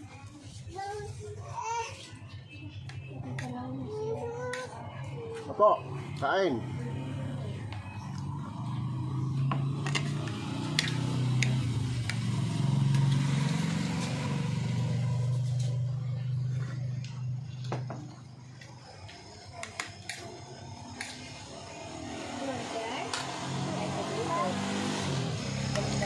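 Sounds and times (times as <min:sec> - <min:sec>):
motor engine humming: 0:25.3 - 0:26.0.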